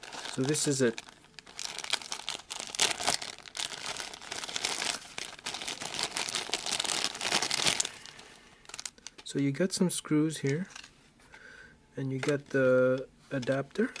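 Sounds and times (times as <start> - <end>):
plastic bag crinkling: 0.0 - 9.3.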